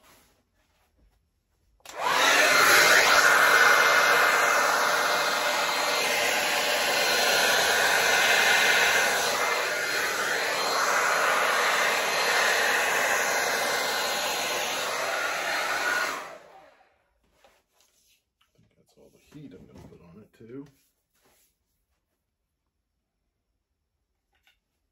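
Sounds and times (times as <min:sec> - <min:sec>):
hair dryer blowing: 0:01.8 - 0:17.0.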